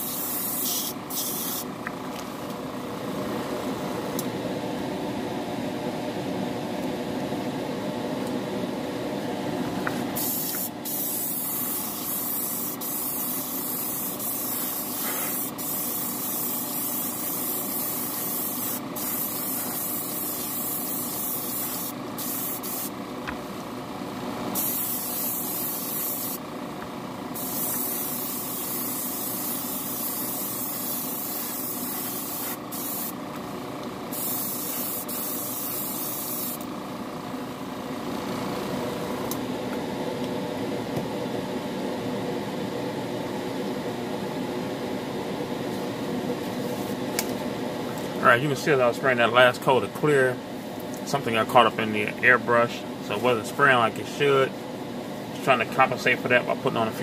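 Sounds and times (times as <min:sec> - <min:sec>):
airbrush spraying hiss: 0:00.0 - 0:01.7, 0:10.2 - 0:23.0, 0:24.6 - 0:26.4, 0:27.3 - 0:33.2, 0:34.1 - 0:36.7
machine hum: 0:01.0 - 0:46.5.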